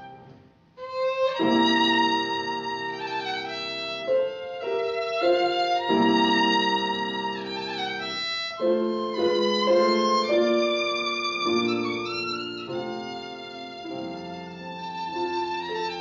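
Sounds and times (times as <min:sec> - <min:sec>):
violin melody: 0:00.0 - 0:16.0.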